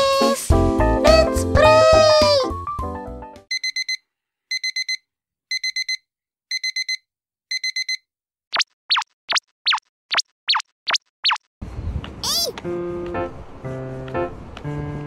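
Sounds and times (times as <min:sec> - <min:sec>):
alarm clock beeping: 0:03.5 - 0:08.0.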